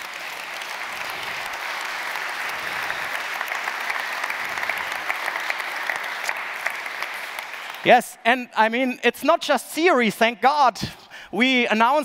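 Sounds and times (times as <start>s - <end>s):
audience clapping: 0.0s - 8.2s.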